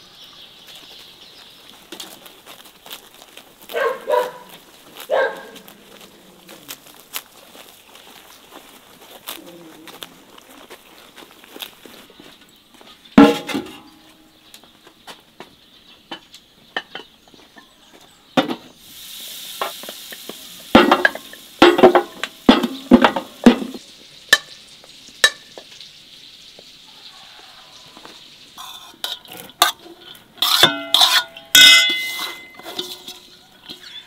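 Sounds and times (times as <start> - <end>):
utensils clinking on cookware: 16.1 - 17.8, 19.6 - 24.6, 28.5 - 34.0
food sizzling in a pan: 18.7 - 29.6
metal utensil scraping pan: 28.5 - 34.0.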